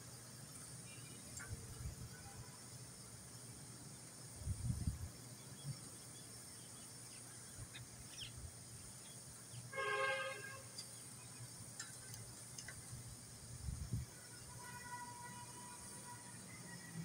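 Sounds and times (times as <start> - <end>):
outdoor background hiss: 0.0 - 17.0
horn honking: 9.7 - 10.8, 14.1 - 17.0.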